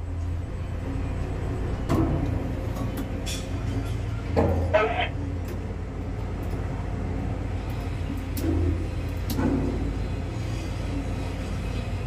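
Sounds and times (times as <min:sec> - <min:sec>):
machine rumble: 0:00.0 - 0:12.0.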